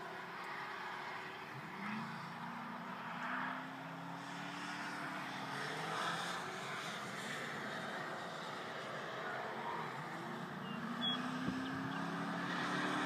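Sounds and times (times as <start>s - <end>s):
car engine accelerating: 9.5s - 13.0s.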